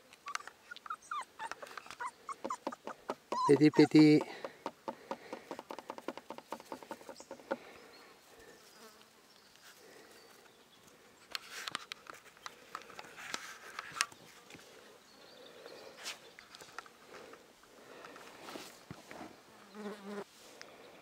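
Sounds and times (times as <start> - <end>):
puppy sniffing: 0.2 - 7.6
rustles in grass: 18.2 - 20.6.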